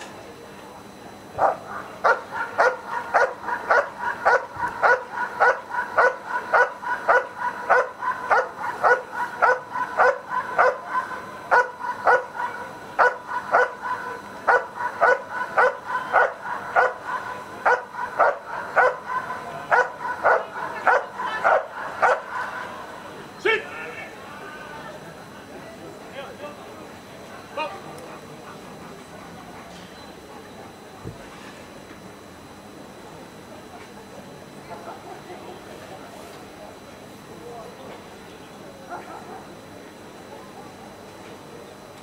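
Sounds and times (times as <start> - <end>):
dog barking: 1.4 - 22.7.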